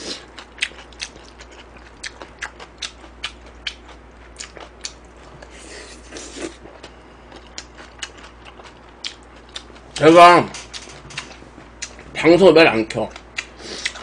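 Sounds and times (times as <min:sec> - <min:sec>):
wet chewing and smacking: 0:00.2 - 0:05.5, 0:06.1 - 0:10.0, 0:13.1 - 0:14.0.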